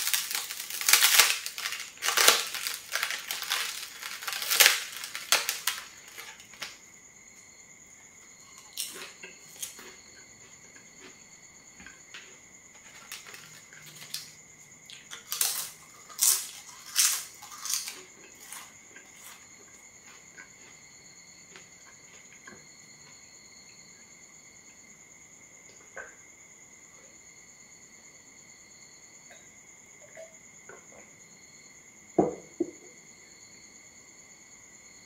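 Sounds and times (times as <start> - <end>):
crackers crunched while eating: 0.0 - 6.8, 8.4 - 11.2, 11.8 - 20.8.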